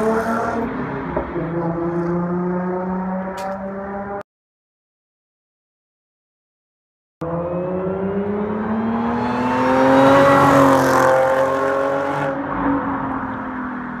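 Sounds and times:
car engine accelerating past: 7.2s - 12.4s.

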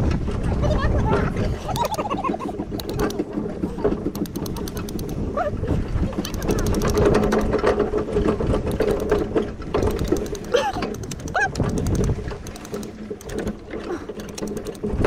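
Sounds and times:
cart and harness rattling: 0.0s - 15.0s
fast even clicks: 1.7s - 3.3s, 4.0s - 5.2s, 6.1s - 7.8s, 8.6s - 15.0s.

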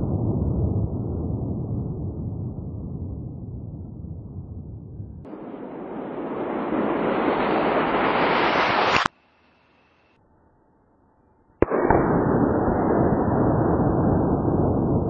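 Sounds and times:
explosion blast and rumble: 0.0s - 9.0s, 11.6s - 15.0s
rushing blast noise: 5.2s - 9.1s.

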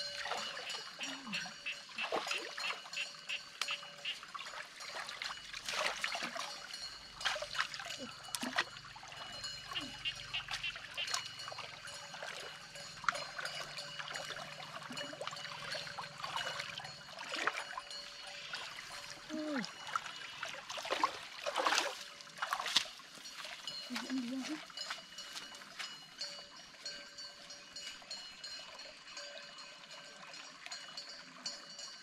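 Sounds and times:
hands splashing in water: 20.8s - 22.9s.

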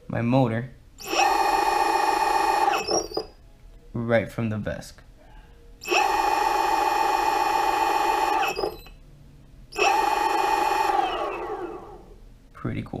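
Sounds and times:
electric motor high-pitched whine: 1.0s - 3.3s, 5.8s - 8.9s, 9.8s - 12.0s.

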